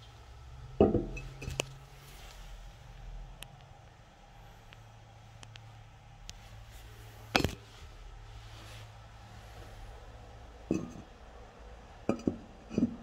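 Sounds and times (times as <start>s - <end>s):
ceramic lid dull knocks: 0.8s - 1.2s, 12.1s - 13.0s.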